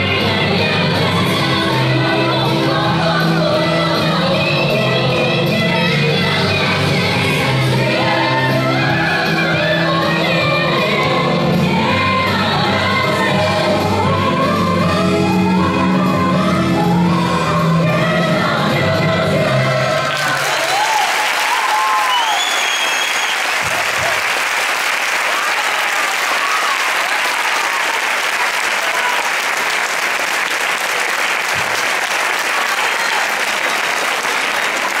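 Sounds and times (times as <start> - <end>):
audience applause: 19.9 - 35.0
audience whooping: 20.1 - 30.7, 31.4 - 35.0.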